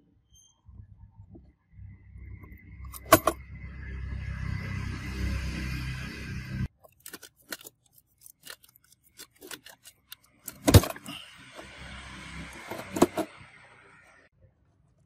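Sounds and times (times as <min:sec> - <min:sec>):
computer parts clicking and rattling: 0:06.7 - 0:11.1.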